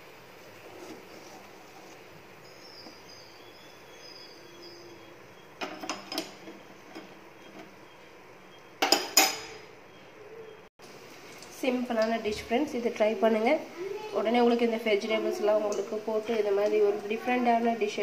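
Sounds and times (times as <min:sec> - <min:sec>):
metal spoon clinking on pan: 0:08.8 - 0:09.6.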